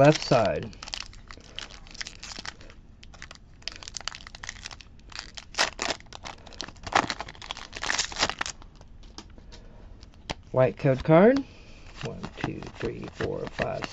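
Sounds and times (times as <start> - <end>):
foil wrapper crinkling and tearing: 0.0 - 8.8, 12.3 - 13.9.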